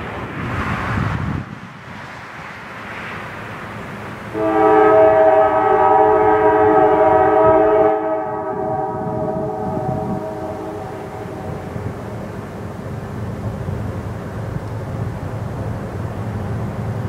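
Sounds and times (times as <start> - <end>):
locomotive air horn blast: 4.3 - 12.1.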